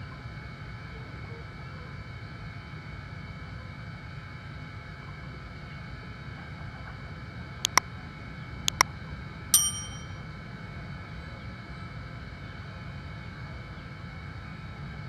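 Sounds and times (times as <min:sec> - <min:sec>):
bell notification ding: 0:09.6 - 0:10.2.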